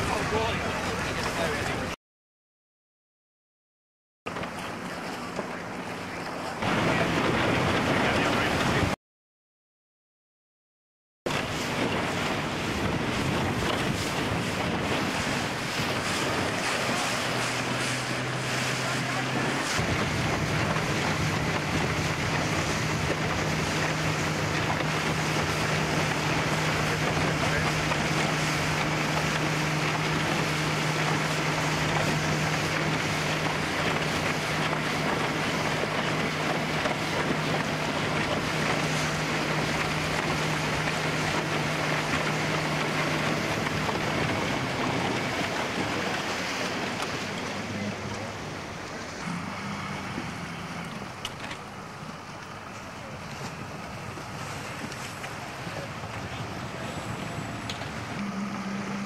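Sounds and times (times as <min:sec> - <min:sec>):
outboard motor running: 0:00.0 - 0:02.0, 0:04.3 - 0:09.0, 0:11.3 - 0:59.0
rushing water: 0:00.0 - 0:02.0, 0:04.3 - 0:09.0, 0:11.3 - 0:59.0
wind noise on microphone: 0:11.3 - 0:47.4, 0:53.0 - 0:59.0.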